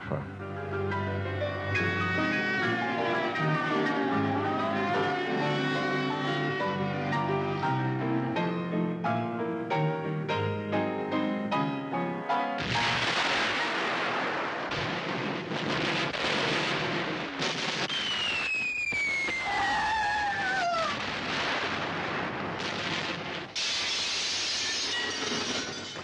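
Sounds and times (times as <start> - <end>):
loud blast: 12.6 - 19.6
explosions and rumbling: 12.6 - 26.0
falling bomb whistle: 17.8 - 21.0
glass shattering: 23.6 - 26.0.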